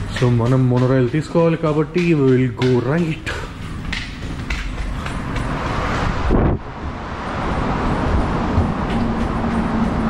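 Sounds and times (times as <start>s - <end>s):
road traffic rumble: 0.0s - 10.0s
wind buffeting microphone: 0.0s - 10.0s.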